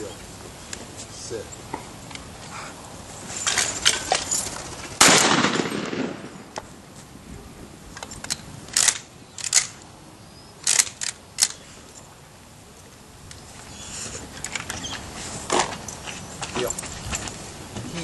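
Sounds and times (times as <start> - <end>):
shotgun blast with echo: 5.0 - 6.5.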